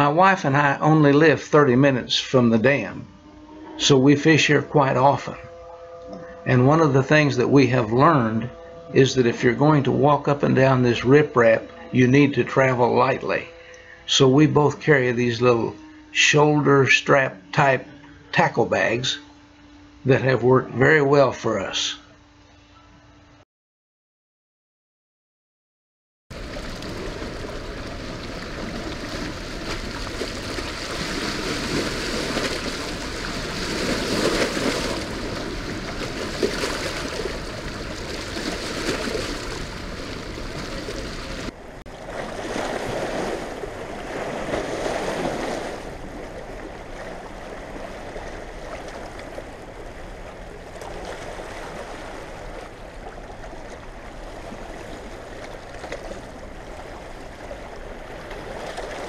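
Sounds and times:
rushing water: 0.0s - 2.8s, 26.3s - 59.0s.

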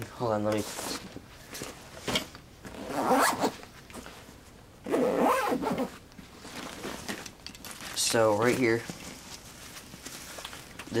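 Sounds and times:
zipper being pulled: 2.7s - 3.6s, 4.8s - 6.0s.

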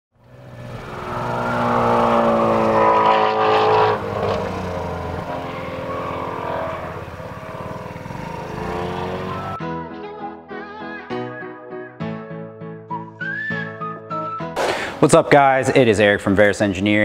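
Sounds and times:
car engine driving past: 0.2s - 9.6s.

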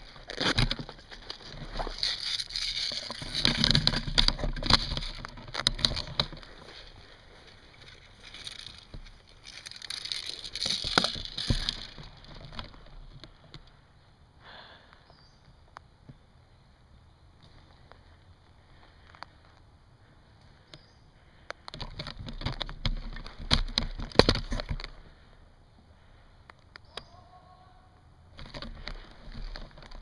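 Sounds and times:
rustling through tall grass: 0.0s - 13.2s.

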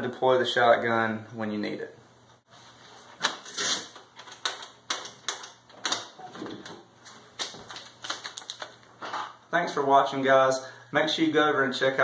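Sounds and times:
sharp clicks and knocks: 4.0s - 6.8s.

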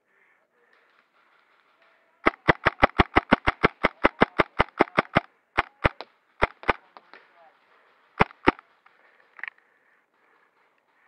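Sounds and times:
airsoft pistol firing: 2.3s - 6.8s, 8.2s - 8.6s.

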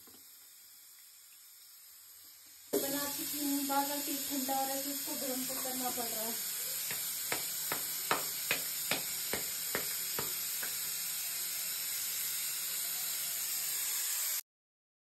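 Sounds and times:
steady hiss: 0.0s - 14.4s
dough slapped between palms: 6.8s - 10.8s.

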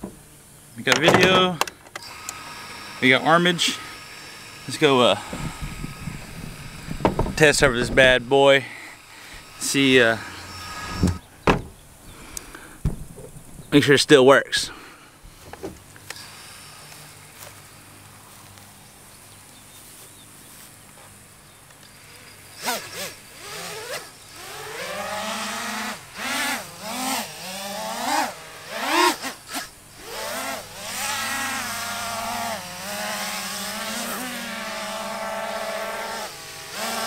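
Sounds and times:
quadcopter motors whining: 0.0s - 37.0s.

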